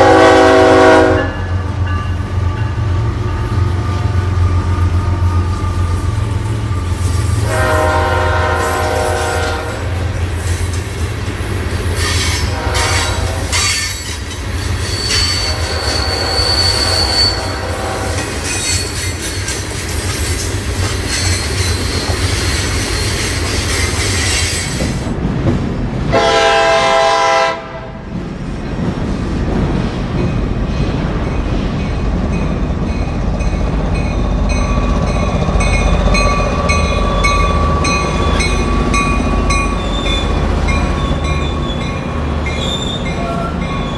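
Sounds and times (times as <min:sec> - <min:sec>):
train horn: 0:00.0 - 0:01.7, 0:07.1 - 0:10.1, 0:12.0 - 0:13.9, 0:15.0 - 0:18.6, 0:26.1 - 0:28.0
train rumbling past: 0:00.0 - 0:43.9
train wheel clatter: 0:10.0 - 0:25.8
high wheel squeal: 0:12.0 - 0:20.1, 0:36.8 - 0:43.9.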